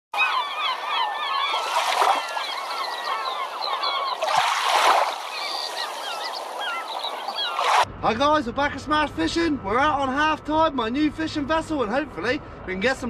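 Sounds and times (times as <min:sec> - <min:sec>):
flock of birds calling: 0:00.2 - 0:07.8
rushing splashing noises: 0:01.5 - 0:07.9.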